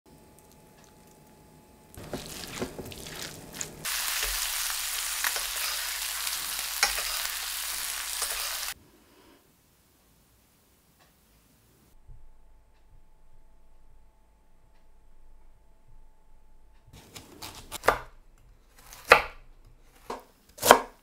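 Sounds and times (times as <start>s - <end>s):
fish sizzling in a pan: 2.0s - 8.8s.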